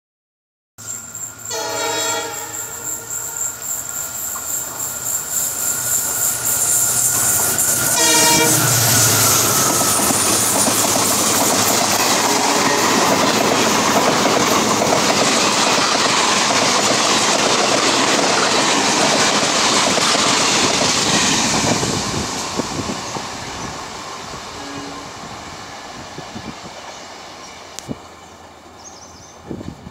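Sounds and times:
train coaches rushing past: 0:00.8 - 0:29.9
locomotive twin-tone horn blasts: 0:01.5 - 0:03.6, 0:07.9 - 0:10.7, 0:12.0 - 0:13.3, 0:24.5 - 0:25.4
wheels clacking over rails: 0:04.3 - 0:23.4.

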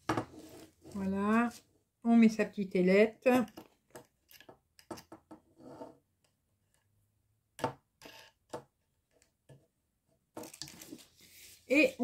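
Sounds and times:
metal clicking and scraping on wood: 0:03.3 - 0:06.9, 0:08.0 - 0:09.4.

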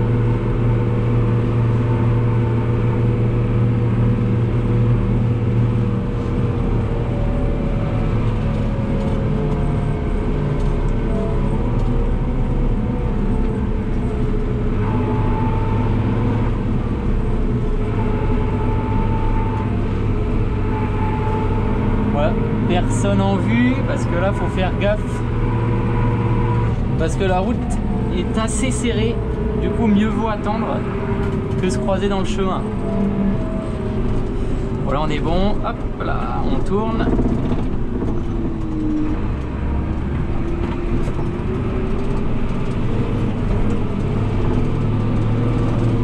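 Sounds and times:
tractor diesel engine running: 0:00.0 - 0:46.0.

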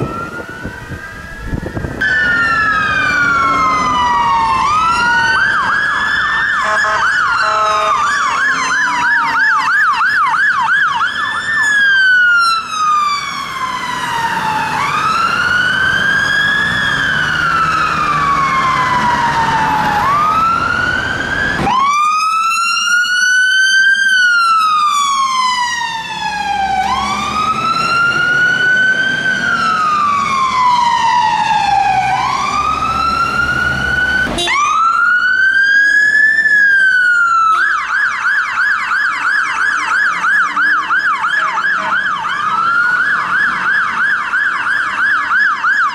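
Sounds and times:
fire engine siren wailing: 0:00.0 - 0:45.9
siren rapid yelp: 0:00.0 - 0:45.9.

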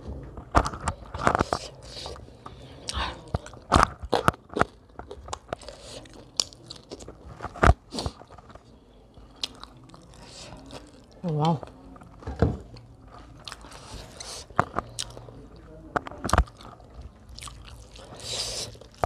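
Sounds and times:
chewing and lip-smacking: 0:01.3 - 0:07.2, 0:09.2 - 0:11.6, 0:12.7 - 0:19.0.

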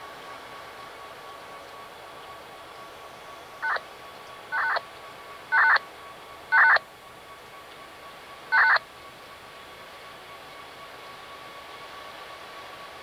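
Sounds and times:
touch-tone dialing beeps over radio: 0:03.6 - 0:03.8, 0:04.5 - 0:04.8, 0:05.5 - 0:05.8, 0:06.5 - 0:06.8, 0:08.5 - 0:08.8.

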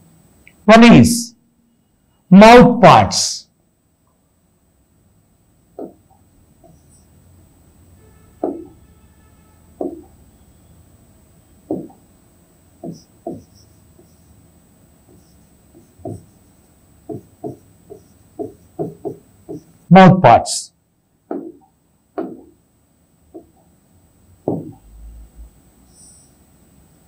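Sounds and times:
stylus tapping on glass: 0:05.8 - 0:06.0, 0:08.4 - 0:08.8, 0:09.8 - 0:10.2, 0:11.7 - 0:12.0, 0:12.8 - 0:13.6, 0:15.1 - 0:16.4, 0:17.0 - 0:19.7, 0:21.3 - 0:22.6, 0:24.5 - 0:24.8.

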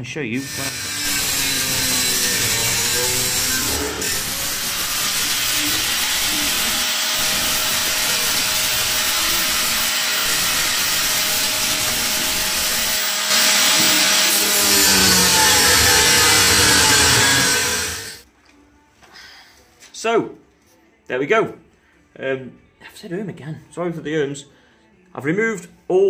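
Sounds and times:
angle grinder cutting steel: 0:00.4 - 0:18.2.

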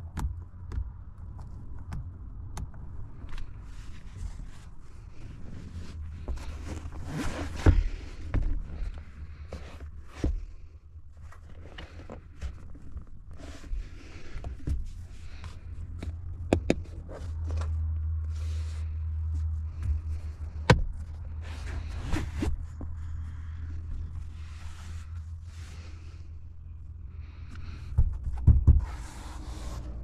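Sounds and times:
low steady hum: 0:00.0 - 0:30.0
hands rubbing cloth upholstery: 0:03.8 - 0:10.5
plastic armrest clicks and knocks: 0:16.0 - 0:17.6.

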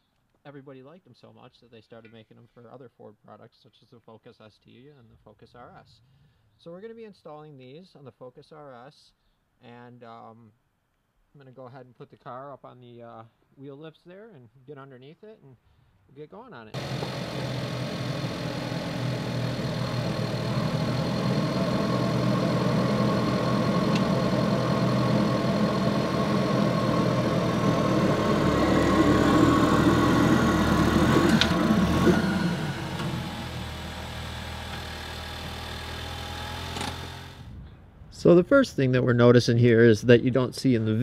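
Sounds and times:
car engine running at low speed: 0:16.8 - 0:37.6.

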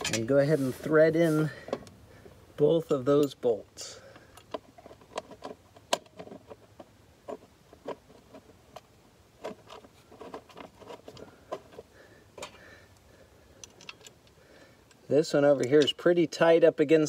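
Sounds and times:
metal bolts clicking and tapping: 0:00.0 - 0:00.4, 0:02.8 - 0:03.5, 0:04.1 - 0:11.8, 0:13.5 - 0:16.4.

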